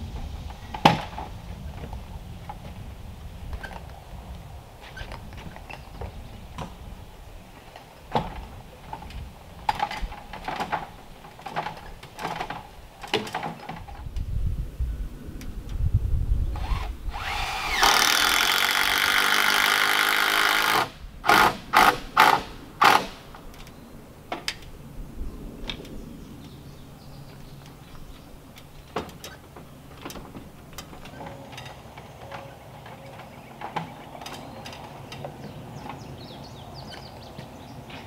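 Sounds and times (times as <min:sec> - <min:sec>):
power drill running: 0:16.6 - 0:23.0.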